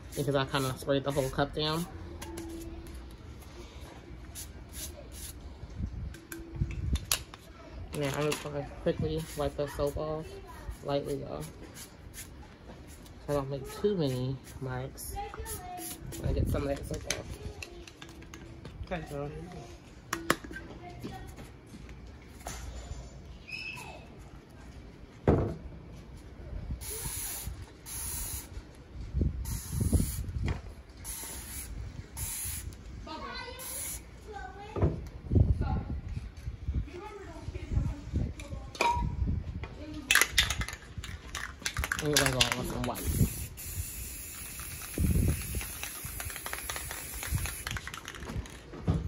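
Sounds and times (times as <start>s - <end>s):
spray nozzle hissing: 26.8s - 28.5s, 29.5s - 30.3s, 31.1s - 32.8s, 43.0s - 48.0s.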